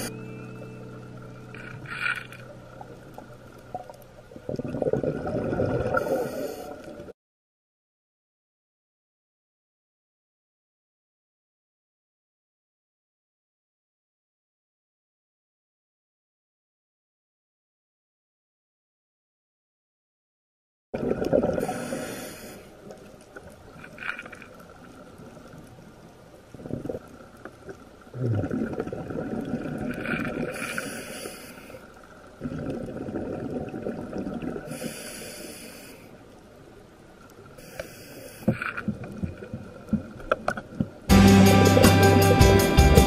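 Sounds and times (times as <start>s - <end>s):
bubbly exhalation rumble: 4.5s - 6.3s, 28.1s - 30.6s
regulator inhalation hiss: 21.6s - 22.8s, 30.6s - 31.9s, 34.7s - 36.2s, 37.6s - 38.6s.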